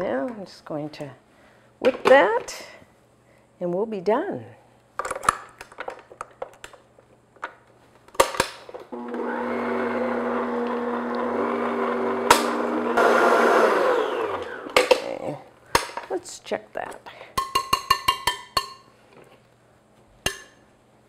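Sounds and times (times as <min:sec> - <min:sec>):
stand mixer motor running: 0:09.0 - 0:14.7.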